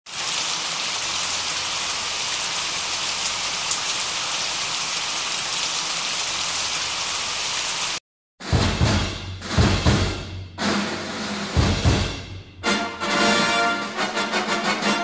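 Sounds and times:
rain-like hiss: 0.1s - 8.0s
music with heavy low drum hits: 8.4s - 12.8s.

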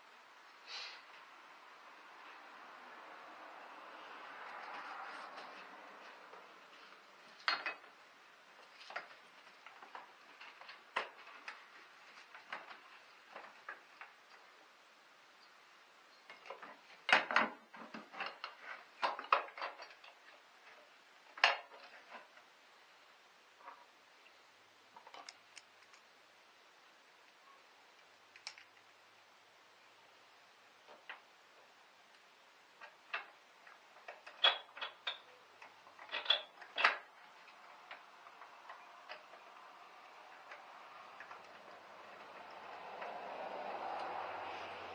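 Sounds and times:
plastic and metal parts clattering: 16.3s - 20.3s, 32.8s - 39.5s.

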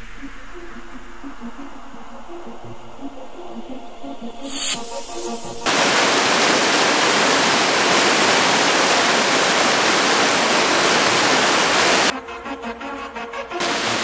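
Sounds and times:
water pouring onto rocks: 5.7s - 12.1s
whitewater rushing: 5.7s - 12.1s, 13.6s - 14.0s.

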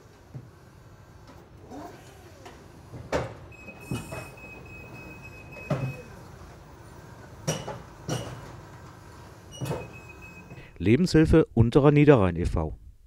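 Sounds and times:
forklift clanks and knocks: 7.4s - 10.1s.

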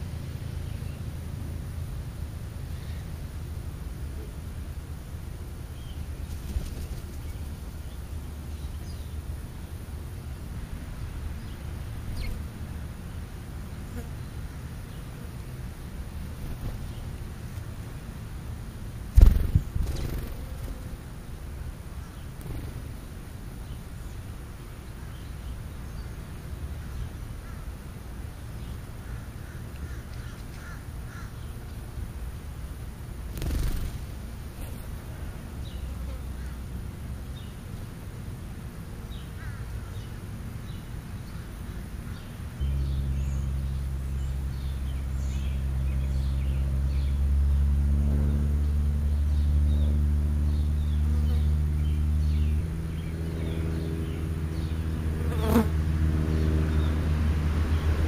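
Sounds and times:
low engine hum: 0.0s - 58.0s
small birds chirping: 5.7s - 10.4s, 11.0s - 17.7s, 19.1s - 21.0s, 21.9s - 27.8s, 33.3s - 36.6s, 39.0s - 55.7s.

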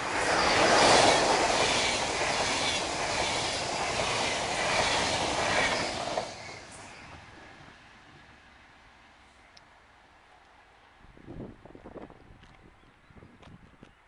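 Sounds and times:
regular beat of train wheels: 0.0s - 7.7s
train passing at speed: 0.0s - 9.2s.

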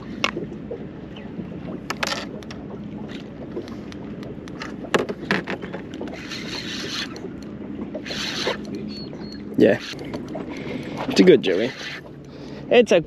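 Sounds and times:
water and wind hum: 0.0s - 13.0s
knocks and clicks of fishing gear: 0.2s - 0.5s, 1.8s - 6.2s, 10.0s - 11.2s.

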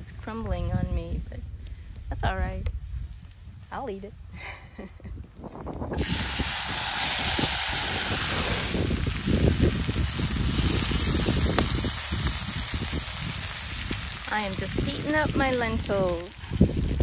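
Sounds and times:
food sizzling in a pan: 6.0s - 17.0s.

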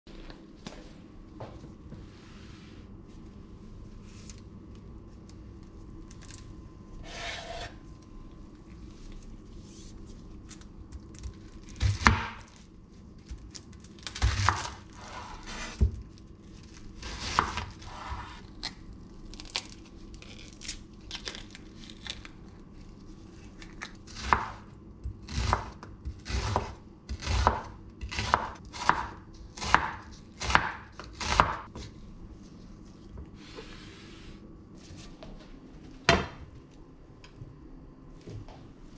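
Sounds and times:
knife slicing onion on wooden board: 7.0s - 7.8s, 17.0s - 18.4s, 24.1s - 31.9s.

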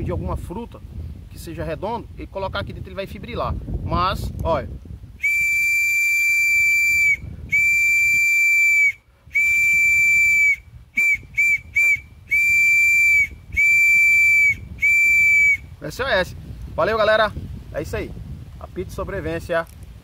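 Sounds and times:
high-pitched whistle blasts: 5.2s - 15.7s.

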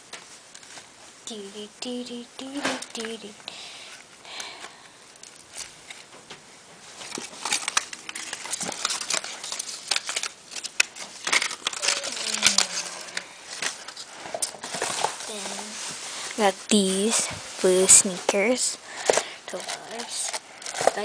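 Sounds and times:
paper bag rustling and crinkling: 6.8s - 21.0s.

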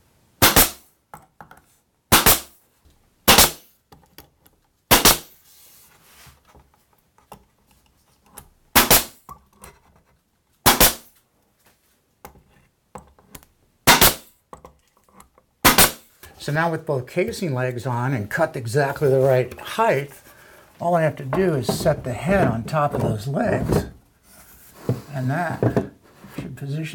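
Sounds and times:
pin nailer firing into wood: 0.4s - 0.9s, 2.1s - 2.6s, 3.3s - 3.7s, 4.9s - 5.4s, 8.7s - 9.2s, 10.6s - 11.1s, 13.9s - 14.3s, 15.6s - 16.1s.

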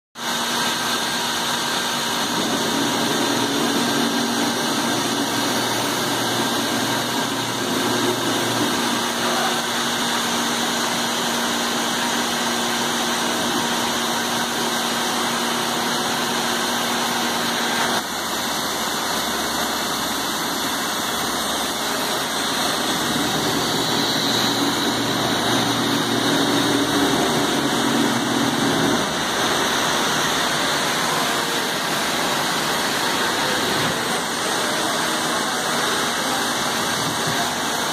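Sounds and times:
cnc router running: 0.2s - 37.9s
low hum: 21.1s - 30.2s.

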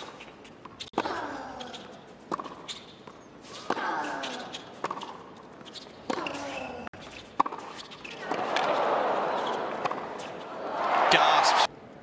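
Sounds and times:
racket striking tennis ball: 7.4s - 8.8s.

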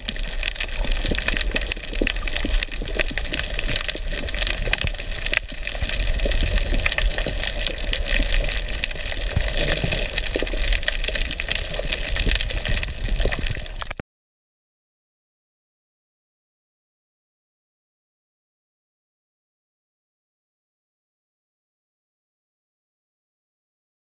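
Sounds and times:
underwater crackling clicks: 0.0s - 14.0s
underwater rushing: 0.0s - 14.0s.

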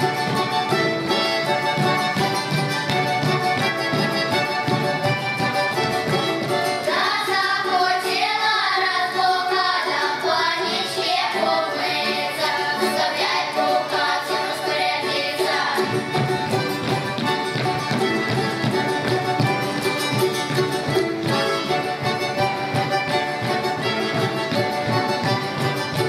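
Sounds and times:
accordion: 0.0s - 26.0s
children singing together: 6.6s - 16.5s.

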